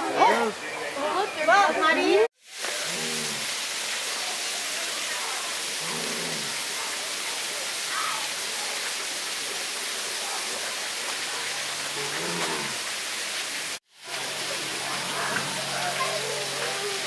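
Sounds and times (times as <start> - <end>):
faint distant voices: 14.1 - 17.0.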